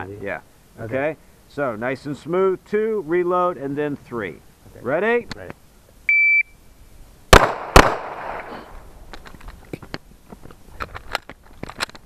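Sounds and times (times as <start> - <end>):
pistol shots: 7.3 - 8.7.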